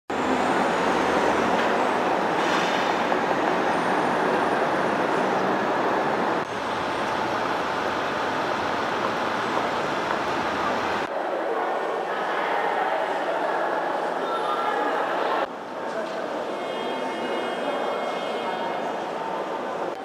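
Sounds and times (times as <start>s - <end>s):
city street traffic: 0.1s - 11.2s.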